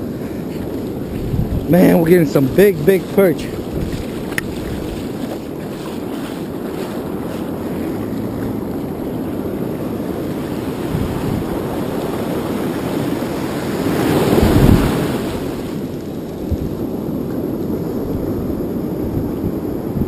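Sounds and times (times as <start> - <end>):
breaking surf rushing: 0.0 - 19.9
wind buffeting microphone: 0.0 - 20.0.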